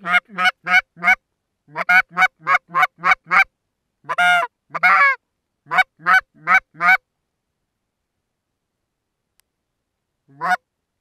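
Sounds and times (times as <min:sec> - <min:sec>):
goose call honking: 0:00.0 - 0:03.5, 0:04.1 - 0:07.0, 0:10.3 - 0:10.6.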